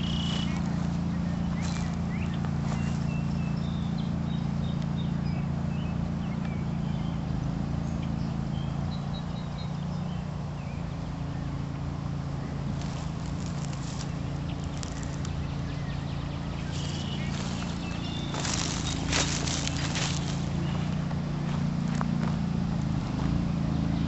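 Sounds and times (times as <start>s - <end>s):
footsteps through dry leaves: 0.0s - 4.0s, 12.5s - 23.4s
bird chirps: 0.0s - 11.7s, 12.3s - 21.1s
low hum: 0.0s - 24.0s.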